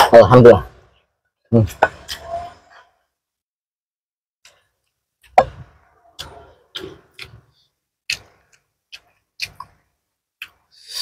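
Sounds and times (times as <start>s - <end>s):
wet chewing and lip-smacking: 8.1s - 10.8s.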